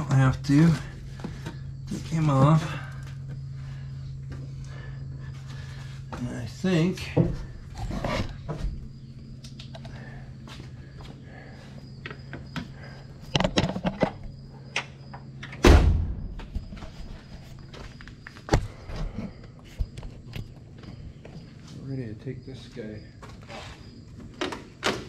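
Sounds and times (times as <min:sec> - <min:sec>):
steady low hum: 0:00.0 - 0:24.9
loud thump: 0:15.6 - 0:16.6.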